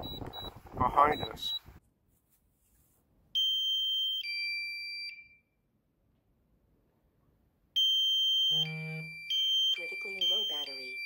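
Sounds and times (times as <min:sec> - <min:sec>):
two-tone warning beep: 0:01.1 - 0:01.6, 0:07.8 - 0:11.0.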